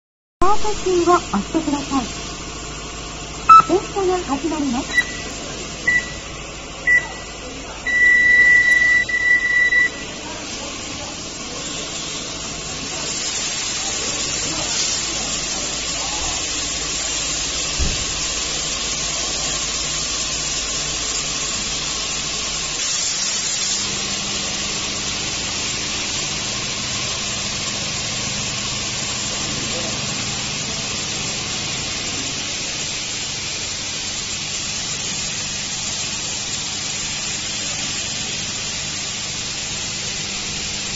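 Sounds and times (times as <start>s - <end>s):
high-pressure water spraying: 3.4s - 40.9s
electronic beep: 3.5s - 3.9s, 4.9s - 5.3s, 5.9s - 6.2s, 6.9s - 7.3s, 7.9s - 10.1s.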